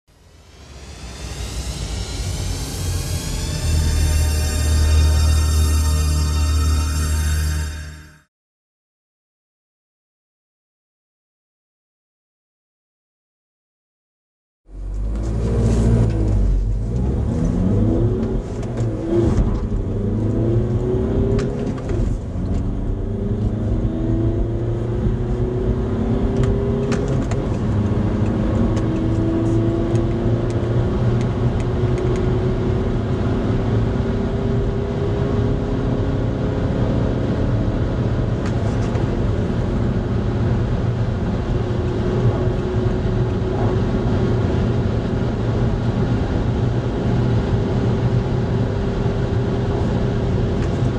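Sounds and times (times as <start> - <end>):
car engine accelerating: 0.1 - 8.2, 14.7 - 50.9
road and wind noise: 14.7 - 50.9.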